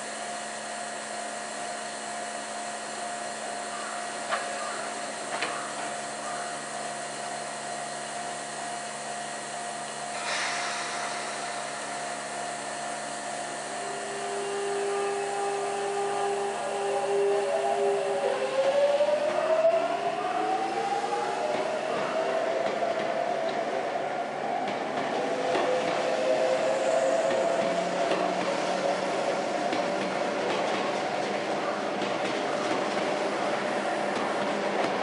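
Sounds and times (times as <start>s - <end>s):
electric train whirring hum: 0.0s - 35.0s
short hiss: 10.1s - 13.1s
steady tone: 10.2s - 14.4s.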